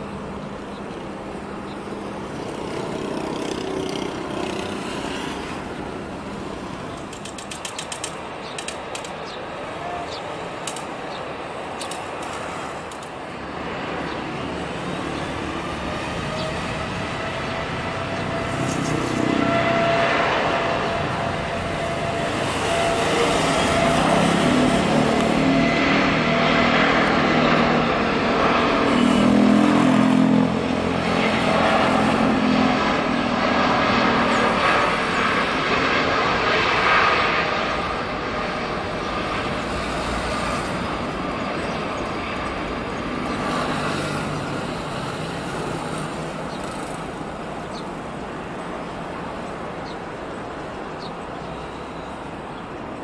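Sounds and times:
jet engine rumble: 0.0 - 29.0, 29.7 - 53.0
jet engines whining: 0.0 - 53.0
sharp clicks: 7.0 - 9.3, 11.8 - 13.1.

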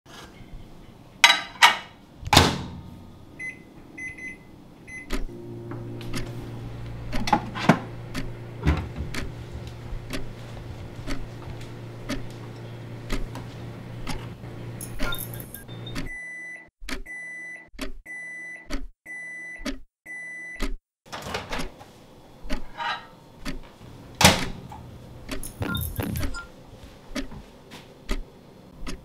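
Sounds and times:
microwave oven humming: 2.1 - 16.1, 21.1 - 29.0
microwave door thump: 2.2 - 2.9, 8.6 - 9.4, 24.2 - 24.7
keypad beeps: 3.4 - 5.3, 14.9 - 20.8, 25.6 - 26.5.

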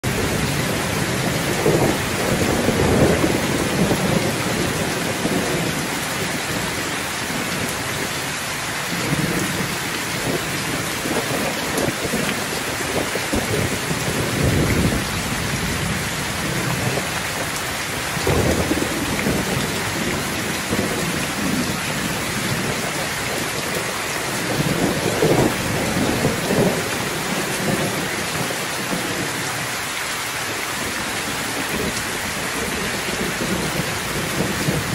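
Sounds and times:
heavy rain pouring: 0.0 - 34.9
thunder rolling: 0.1 - 7.8, 8.9 - 29.4.

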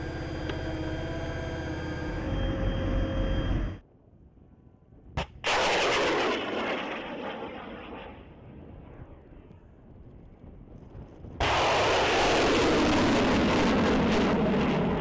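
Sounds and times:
engine hum: 0.0 - 3.8.

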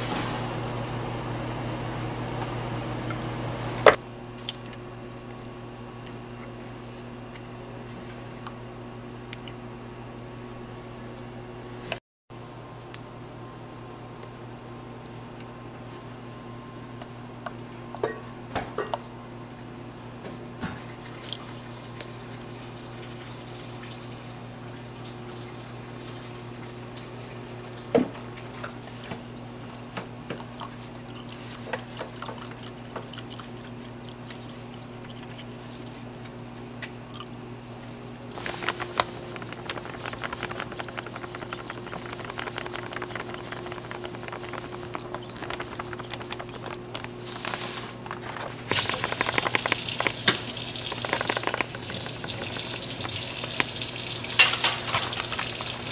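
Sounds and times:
milk pouring into saucepan: 38.4 - 47.1, 48.7 - 55.9.

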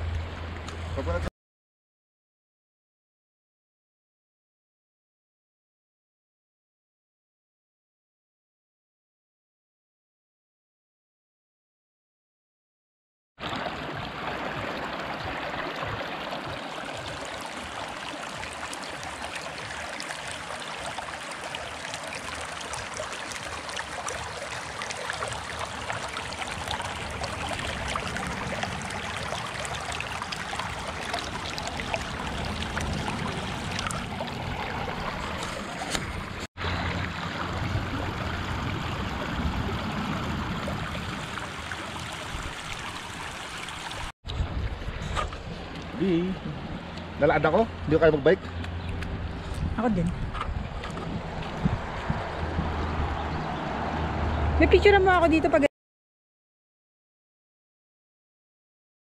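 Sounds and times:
creek running over rocks: 13.4 - 44.1.

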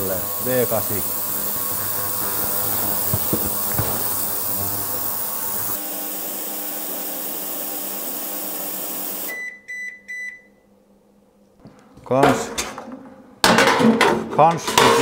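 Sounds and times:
ultrasonic cleaner hiss and hum: 0.0 - 9.3
cleaner beeps: 9.0 - 10.6.

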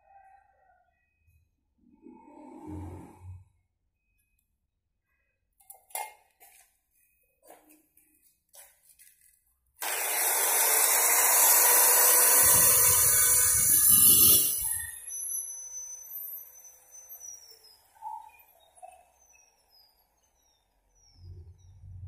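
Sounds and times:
grinder disc grinding steel: 9.8 - 19.8
angle grinder whining: 9.8 - 21.2.

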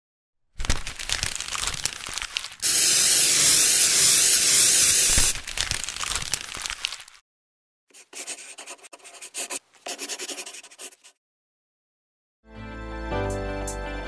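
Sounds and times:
paper crinkling: 0.6 - 7.2
airbrush spray hiss: 2.6 - 5.3
paper scratching: 2.6 - 5.4, 7.9 - 11.2.

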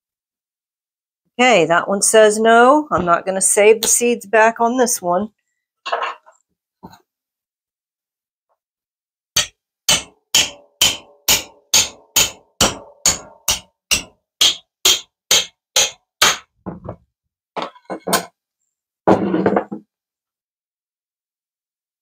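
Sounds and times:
hammer striking knife blade: 9.4 - 16.4.

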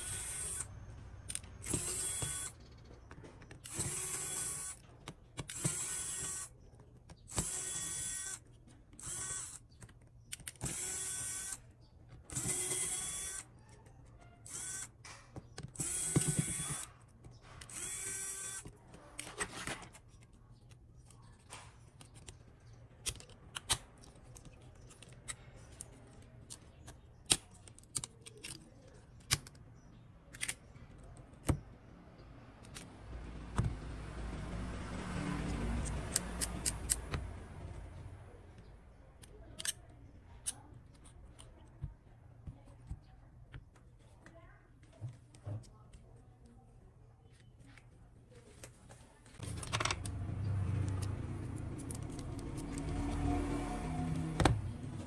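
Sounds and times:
electric screwdriver whirring: 0.0 - 0.7, 1.3 - 2.6, 3.6 - 4.8, 5.4 - 6.5, 7.3 - 9.8, 10.4 - 11.6, 12.3 - 13.5, 14.4 - 15.0, 15.7 - 16.9, 17.6 - 18.7
plastic parts clicking and tapping: 1.2 - 5.8, 9.6 - 10.8, 13.7 - 31.7.

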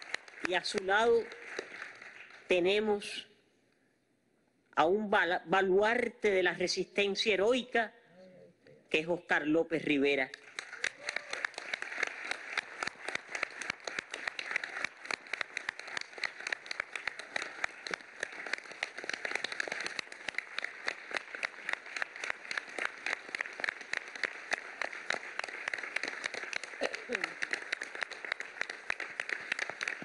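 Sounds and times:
large audience applauding: 0.0 - 2.5, 10.3 - 30.0.

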